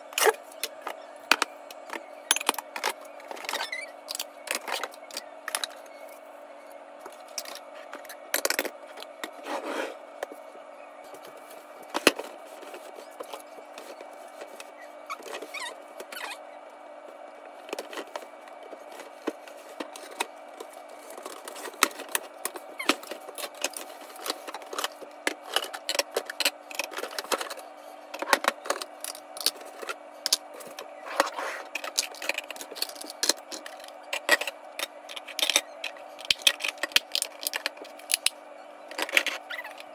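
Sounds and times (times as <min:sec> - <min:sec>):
steady hum: 0:00.0 - 0:39.9.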